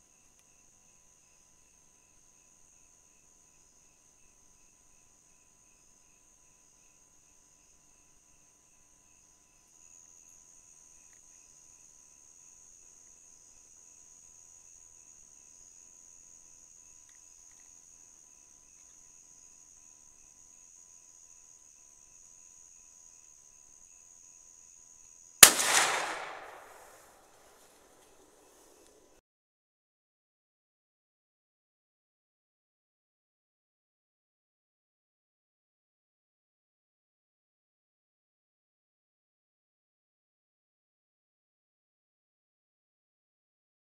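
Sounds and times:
night insects chirping: 0.1s - 29.2s
rifle shot with echo: 25.4s - 27.3s.

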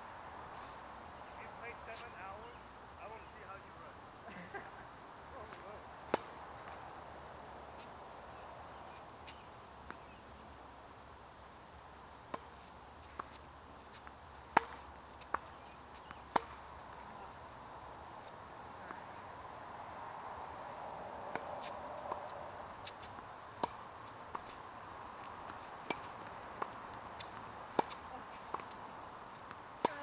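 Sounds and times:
tennis balls struck by rackets: 5.4s - 6.8s, 14.0s - 17.4s, 21.2s - 30.0s
balls bouncing on hard court: 25.4s - 30.0s.

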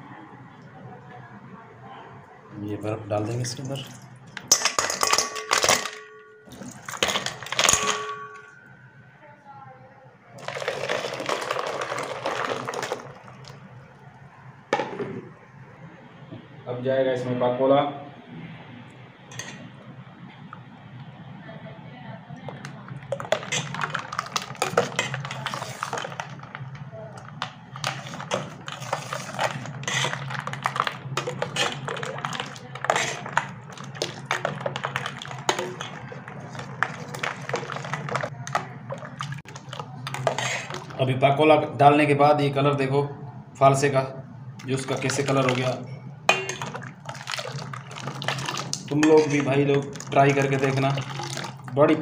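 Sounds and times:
ladle clinking against metal bowl: 4.4s - 8.7s, 46.3s - 47.6s
liquid sloshing: 6.4s - 8.7s, 10.4s - 13.9s, 22.4s - 41.1s, 44.6s - 52.0s
juice pouring onto ice: 10.4s - 13.7s, 23.0s - 41.0s, 46.5s - 51.8s.

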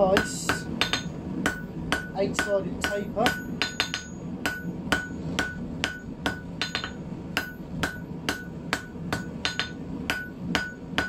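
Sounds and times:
hammer striking steel on anvil: 0.0s - 11.0s.

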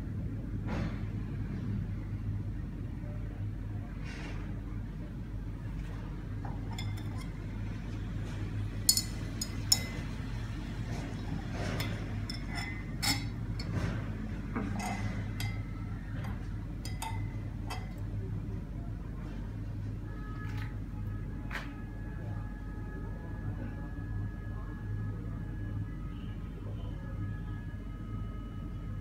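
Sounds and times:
steady low hum: 0.0s - 29.0s
glass rod clinking on beaker: 6.7s - 7.4s, 8.9s - 10.1s, 11.8s - 13.8s, 14.7s - 18.0s.

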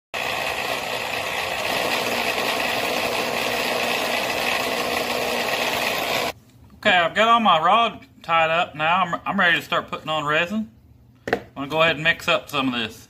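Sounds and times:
electric motor humming: 0.2s - 6.4s.

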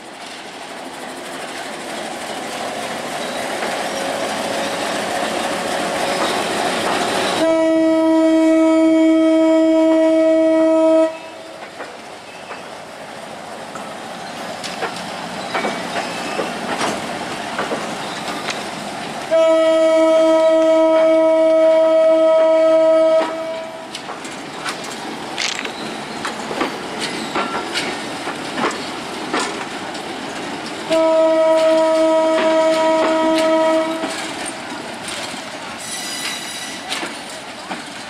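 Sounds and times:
train wheels clicking over rail joints: 0.0s - 7.5s, 11.4s - 19.3s, 22.3s - 38.0s
diesel locomotive engine: 0.0s - 38.0s
locomotive air horn blast: 7.4s - 11.5s, 19.3s - 23.9s, 30.9s - 34.2s.

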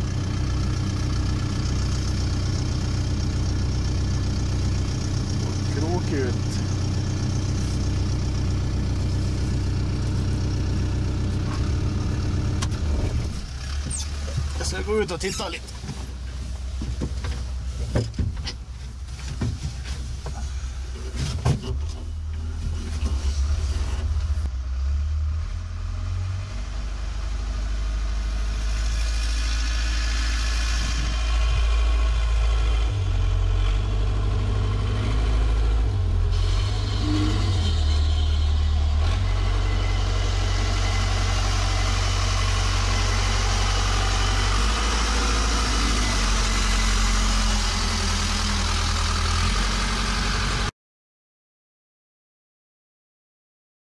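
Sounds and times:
engine idling: 0.0s - 24.6s, 26.6s - 50.7s.

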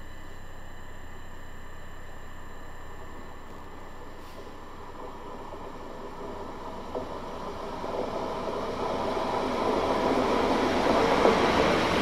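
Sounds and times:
electric train approaching: 5.5s - 12.0s.

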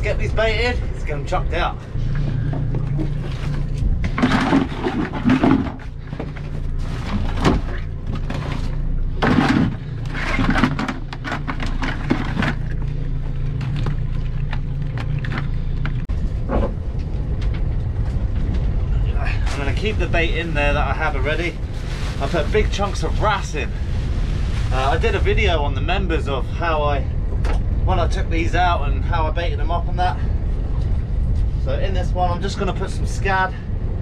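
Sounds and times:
outboard motor idling: 1.2s - 16.9s.

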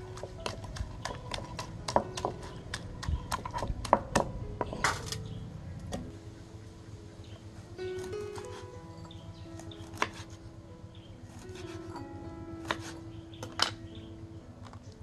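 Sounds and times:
wooden pestle pounding in mortar: 0.0s - 4.9s.

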